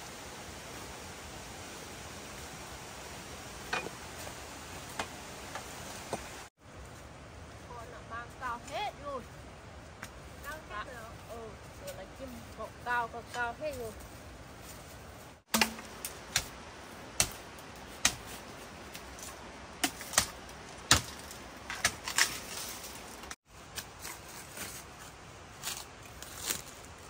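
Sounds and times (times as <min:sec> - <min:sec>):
blade chopping bamboo: 0:15.5 - 0:16.6, 0:17.2 - 0:22.8.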